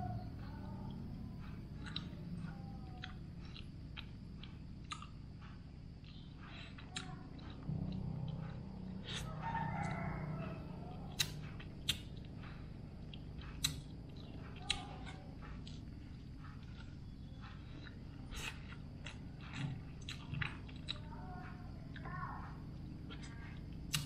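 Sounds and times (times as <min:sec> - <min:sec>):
person eating rice by hand: 0:01.0 - 0:24.0
rooster crowing: 0:07.7 - 0:11.3
sharp clicks: 0:11.1 - 0:12.1.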